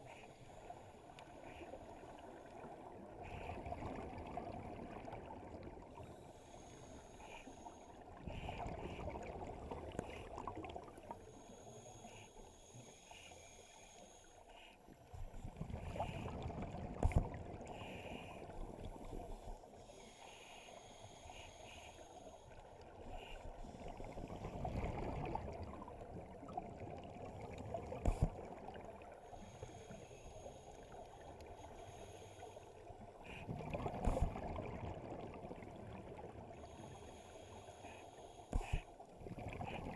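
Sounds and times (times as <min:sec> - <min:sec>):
regulator hiss on inhale: 0:00.0 - 0:03.6, 0:06.0 - 0:09.2, 0:11.0 - 0:24.4, 0:29.1 - 0:34.2, 0:36.5 - 0:39.9.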